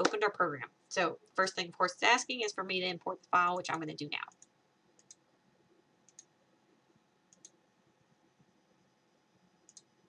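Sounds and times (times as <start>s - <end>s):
computer mouse clicks: 4.3s - 5.2s, 6.0s - 6.3s, 7.3s - 7.6s, 9.6s - 9.9s.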